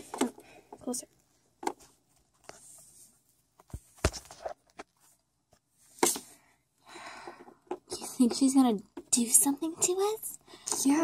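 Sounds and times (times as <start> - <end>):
plastic figurines tapping and clicking: 7.1 - 11.0.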